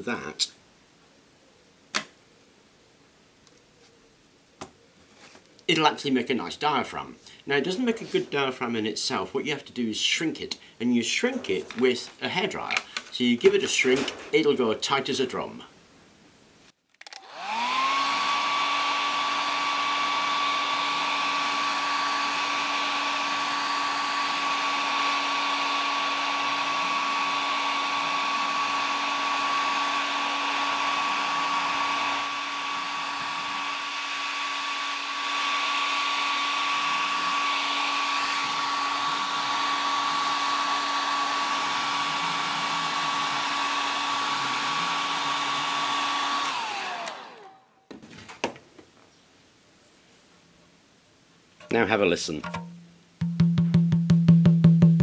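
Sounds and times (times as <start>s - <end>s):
hair dryer running: 17.1s - 47.6s.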